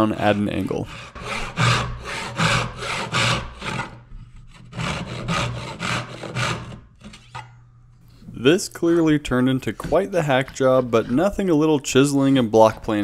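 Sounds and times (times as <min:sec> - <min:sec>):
hand saw cutting wood: 0:00.0 - 0:07.4, 0:09.7 - 0:11.5.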